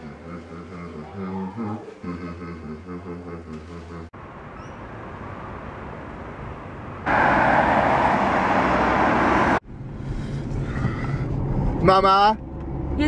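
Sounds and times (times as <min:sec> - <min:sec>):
city traffic noise: 0:02.0 - 0:13.0
road and wind noise of moving car: 0:04.2 - 0:13.0.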